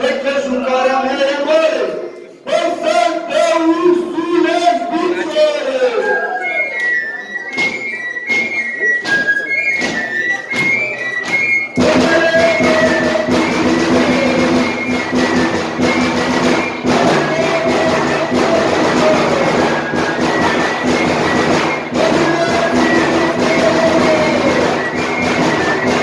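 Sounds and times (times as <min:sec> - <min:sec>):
shrill flute melody: 0:02.5 - 0:26.0
large drums beating: 0:11.8 - 0:26.0.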